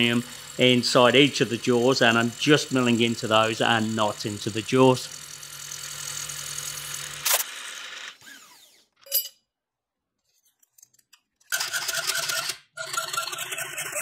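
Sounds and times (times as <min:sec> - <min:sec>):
milling machine cutting metal: 0:00.0 - 0:07.5
hacksaw cutting brass: 0:00.0 - 0:09.4.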